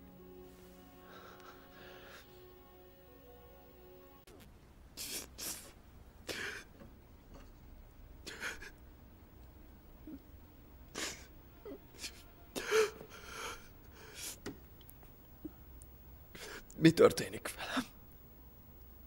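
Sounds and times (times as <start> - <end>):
sniffs: 5.0 - 6.5
man crying: 10.9 - 13.6.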